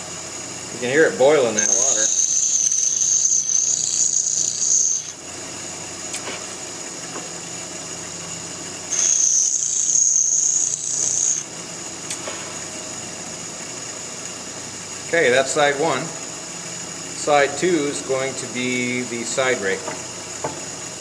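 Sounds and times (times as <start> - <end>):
bench grinder grinding steel: 1.4 - 5.2, 8.9 - 11.5.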